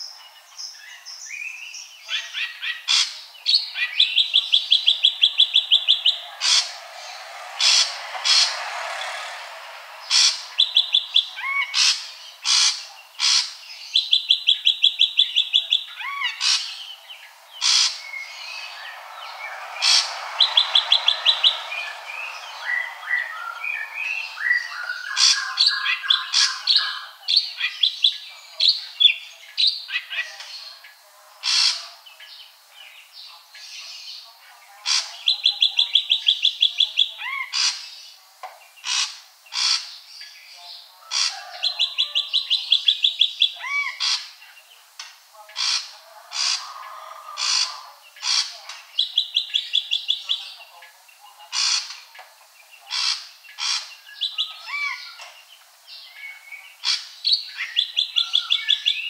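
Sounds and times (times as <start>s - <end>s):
bird song trills: 0.7s - 9.4s, 10.1s - 30.7s, 52.6s - 59.0s.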